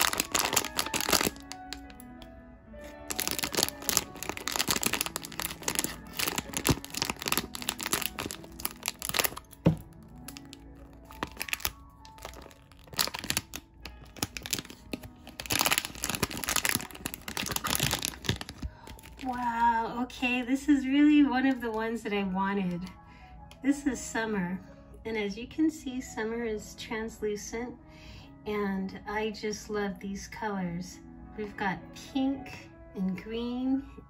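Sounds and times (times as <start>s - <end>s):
foil pouch crinkling: 0.0s - 2.0s, 3.0s - 19.4s
background music: 0.0s - 34.0s.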